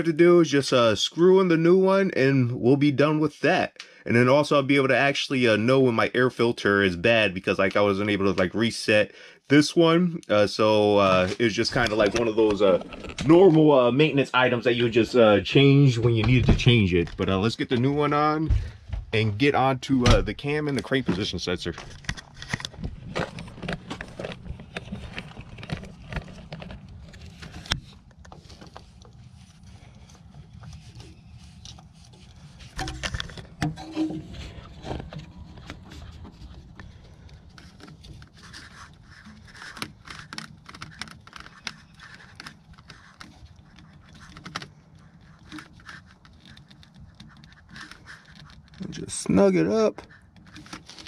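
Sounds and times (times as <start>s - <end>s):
plastic part scraping and rustling: 10.8s - 15.4s, 19.5s - 51.0s.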